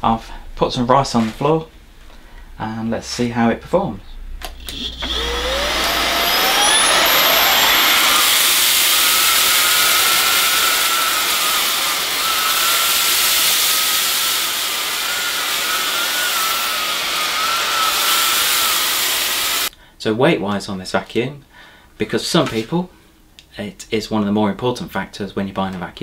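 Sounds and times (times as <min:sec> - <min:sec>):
vacuum cleaner motor whine: 0:04.6 - 0:19.7.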